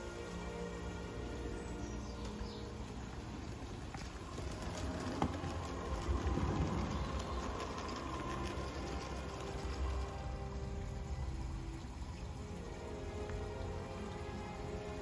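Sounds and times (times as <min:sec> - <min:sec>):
model train rumbling on track: 0:04.0 - 0:11.5.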